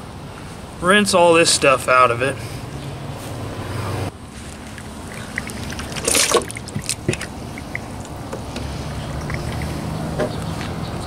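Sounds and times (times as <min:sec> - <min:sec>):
water trickling and splashing: 0:04.3 - 0:10.0
wet splash: 0:04.6 - 0:08.0.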